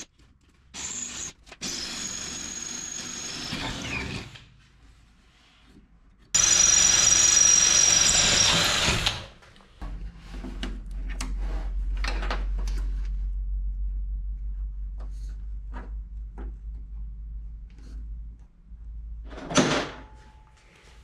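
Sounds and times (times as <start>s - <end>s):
cordless drill whining: 6.4s - 9.3s
low steady hum: 9.8s - 21.0s.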